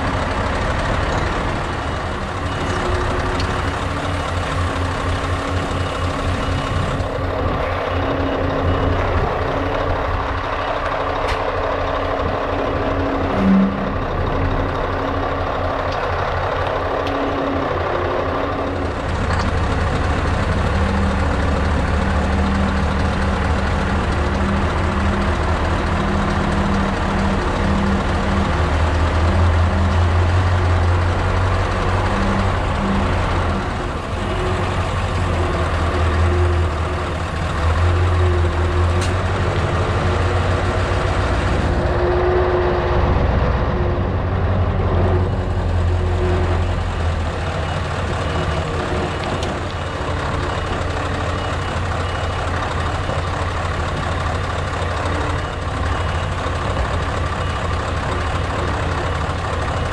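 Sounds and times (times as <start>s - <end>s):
diesel truck engine low hum: 0.0s - 59.9s
reversing alarm beeping: 0.8s - 15.5s, 45.9s - 54.2s, 54.8s - 59.3s.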